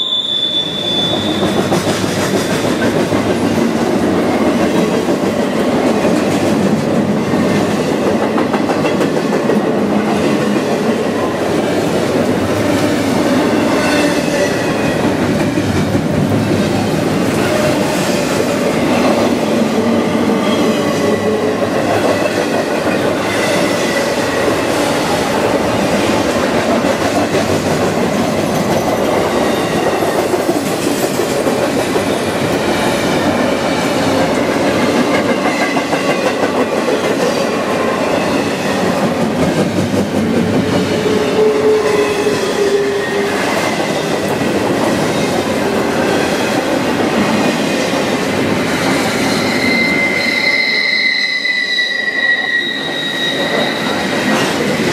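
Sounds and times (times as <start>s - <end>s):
train wheel squeal: 0.0s - 2.9s, 40.6s - 44.1s, 48.8s - 54.7s
freight train rumbling past: 0.0s - 54.9s.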